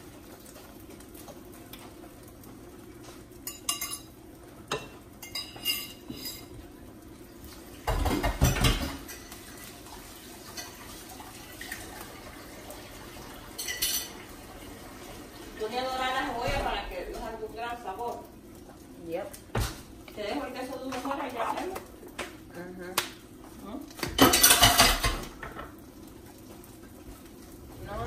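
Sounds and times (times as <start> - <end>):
dishes and cutlery clinking: 3.4 - 6.6, 7.8 - 9.5, 13.5 - 14.3, 24.0 - 25.8
dishes clattering: 3.4 - 6.6, 7.8 - 9.5, 13.5 - 14.3, 24.0 - 25.8.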